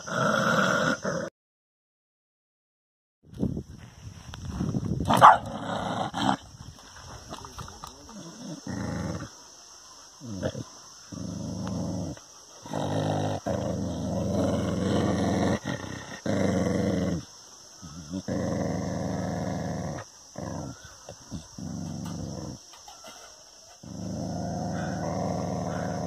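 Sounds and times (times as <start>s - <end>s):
dog growling: 0.0s - 1.3s, 8.1s - 9.4s, 10.2s - 22.7s, 23.8s - 26.0s.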